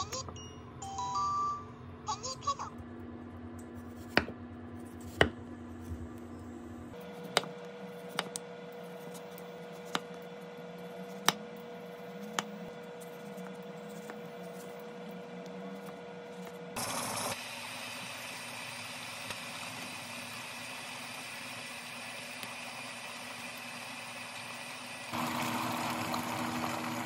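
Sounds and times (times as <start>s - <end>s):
low steady hum: 0.0s - 16.8s
knife tapping cutting board: 7.3s - 8.4s.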